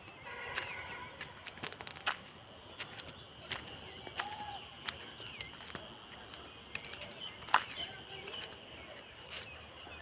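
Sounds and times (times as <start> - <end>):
footsteps on paving: 0.0 - 9.6
bird chirps: 2.6 - 10.0.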